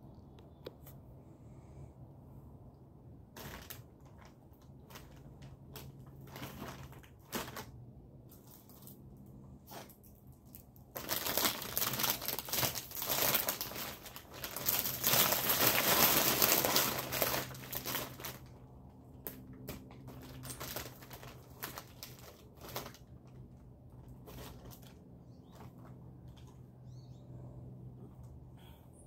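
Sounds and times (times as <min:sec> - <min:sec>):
food wrapper crinkling: 0:03.3 - 0:26.4.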